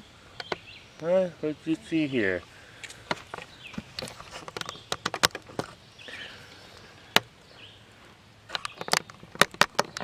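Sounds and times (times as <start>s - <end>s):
footsteps on leaves and twigs: 2.7s - 5.8s.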